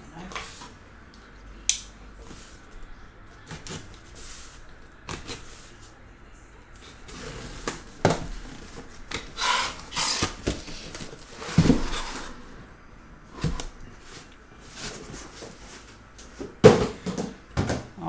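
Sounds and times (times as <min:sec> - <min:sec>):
cardboard scraping and rustling: 0:06.8 - 0:12.6, 0:13.3 - 0:17.2
knocks of handled boxes: 0:10.2 - 0:12.3, 0:16.4 - 0:18.0.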